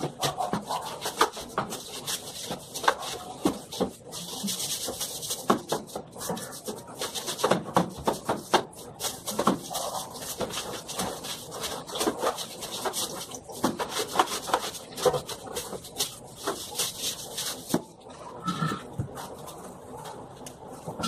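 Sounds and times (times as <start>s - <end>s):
broom scrubbing wet tile floor: 0.0s - 18.0s.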